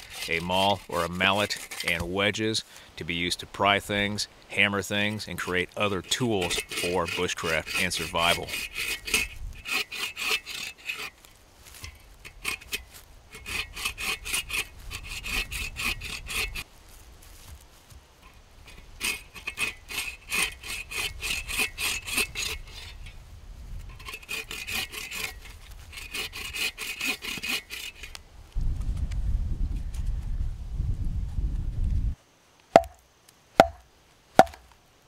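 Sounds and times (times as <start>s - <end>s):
hand saw cutting log: 0.0s - 2.4s, 4.7s - 16.7s, 18.7s - 23.0s, 23.9s - 28.2s.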